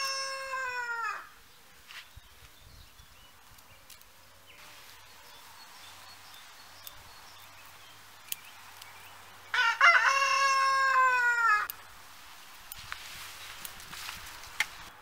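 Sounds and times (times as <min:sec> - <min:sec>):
rooster crowing: 0:00.0 - 0:01.4, 0:09.5 - 0:11.7.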